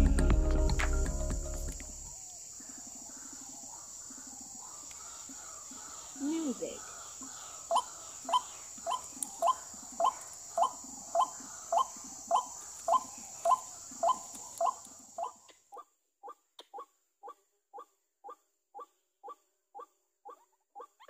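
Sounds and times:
steady high hiss: 0.0s - 15.4s
bird calls through small speaker: 7.7s - 15.4s.

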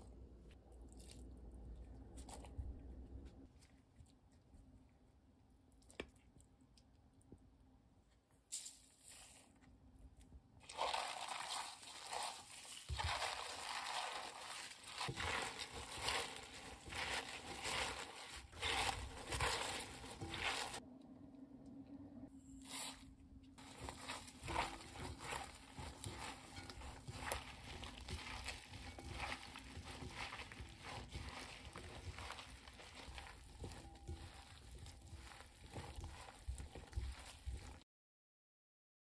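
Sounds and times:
leaves rustling and crunching: 10.7s - 20.8s, 23.6s - 37.8s.

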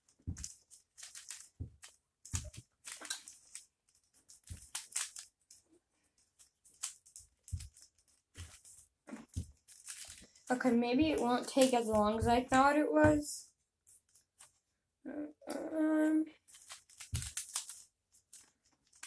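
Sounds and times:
puzzle cube clacking and rattling: 0.1s - 5.6s, 6.2s - 10.3s, 16.4s - 19.0s.

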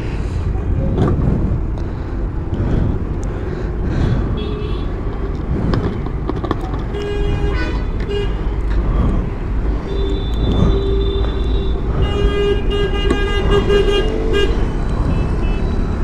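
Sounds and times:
road traffic noise: 0.0s - 16.0s
vehicle horn: 4.4s - 4.9s, 6.9s - 8.5s, 9.8s - 15.7s.

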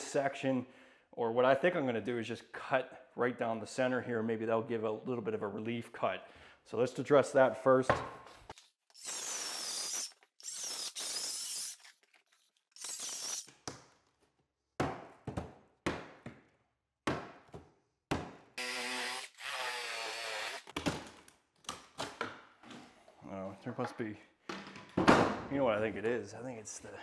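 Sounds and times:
circular saw cutting wood: 18.6s - 20.7s.

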